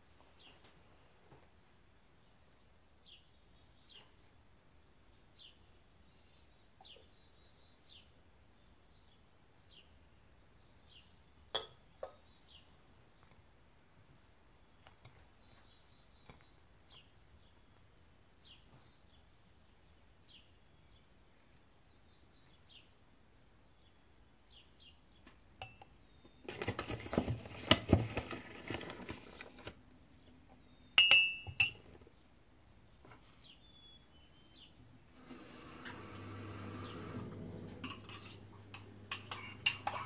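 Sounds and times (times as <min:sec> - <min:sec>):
faint birds chirping: 0:00.1 - 0:40.0
cup clinking on saucer: 0:11.5 - 0:12.2, 0:25.6 - 0:25.9, 0:31.0 - 0:31.9, 0:37.7 - 0:40.0
rustling and handling noise: 0:26.3 - 0:29.9.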